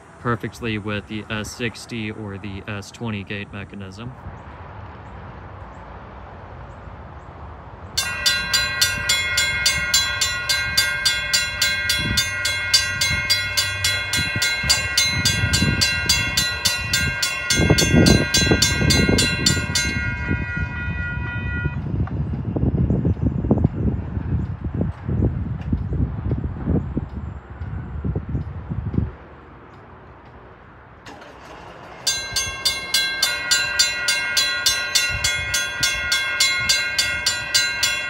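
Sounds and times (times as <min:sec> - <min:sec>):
railroad crossing warning bells: 0:00.0 - 0:04.1, 0:07.8 - 0:24.3, 0:30.6 - 0:38.0
low rumble of crossing gates: 0:07.8 - 0:24.5, 0:29.8 - 0:38.0.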